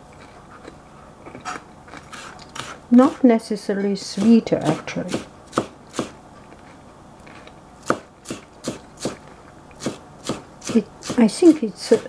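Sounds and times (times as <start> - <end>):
knife chopping on plastic board: 4.2 - 6.2, 7.8 - 9.2, 9.8 - 12.0.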